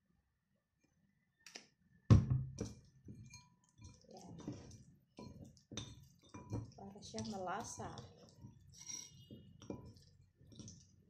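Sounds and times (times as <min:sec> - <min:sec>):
hands squishing raw chicken: 0:03.7 - 0:11.0.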